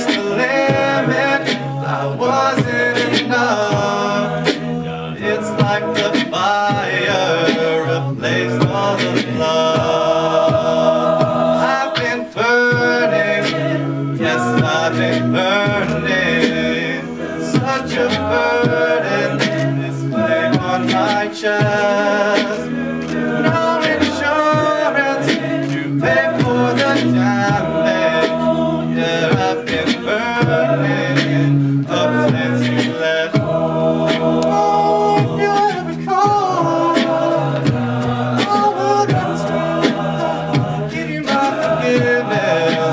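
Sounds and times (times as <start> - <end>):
beatboxing: 0.0 - 42.9
men singing in close harmony: 0.0 - 42.9.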